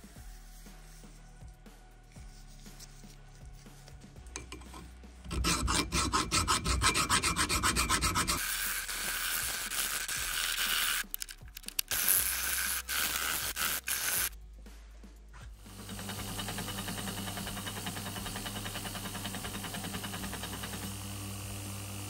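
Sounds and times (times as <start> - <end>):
hand file rasping on steel: 4.4 - 10.7.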